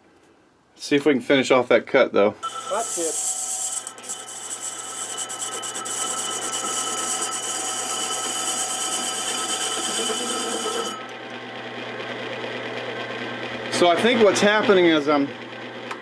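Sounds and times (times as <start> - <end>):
lathe tool scraping metal: 2.4 - 11.2
lathe machine whine: 2.4 - 15.9.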